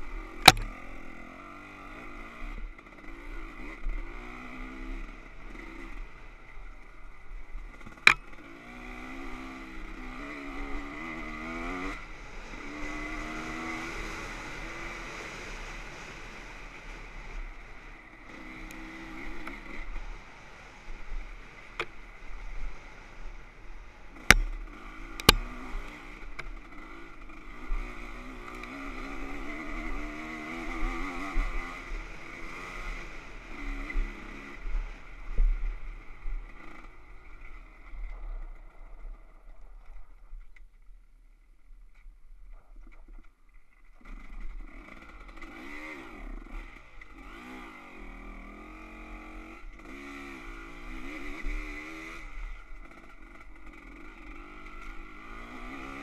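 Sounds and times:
dirt bike engine revving: 0.0s - 20.2s, 23.8s - 39.6s, 44.0s - 56.0s.

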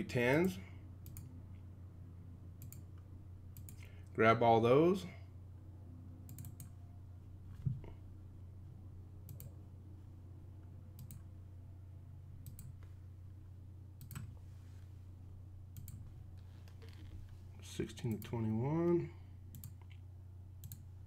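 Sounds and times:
steady low hum: 0.0s - 21.0s
computer mouse clicking: 1.0s - 1.3s, 2.6s - 2.8s, 3.6s - 3.8s, 6.3s - 6.7s, 9.3s - 9.5s, 11.0s - 11.2s, 12.4s - 12.8s, 14.0s - 14.4s, 15.8s - 16.0s, 19.5s - 20.0s, 20.6s - 20.9s.

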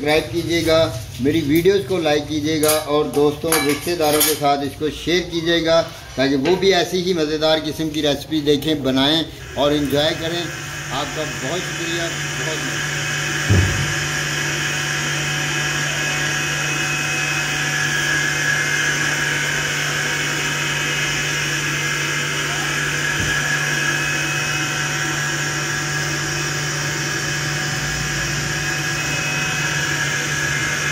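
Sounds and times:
machine hum with hiss: 9.2s - 30.9s.

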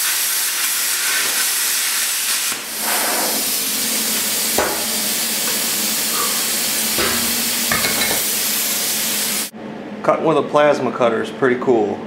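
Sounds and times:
plasma cutter air hiss: 0.0s - 9.5s.

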